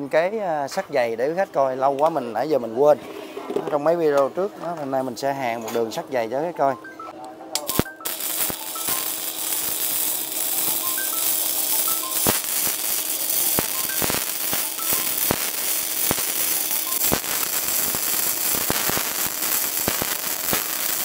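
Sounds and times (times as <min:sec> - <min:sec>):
welding arc crackling: 0:07.6 - 0:21.0.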